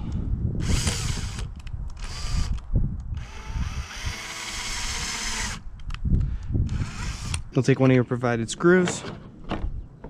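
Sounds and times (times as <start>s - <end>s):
cordless drill drilling into plastic: 0.6s - 2.6s, 3.2s - 5.6s, 6.7s - 7.5s.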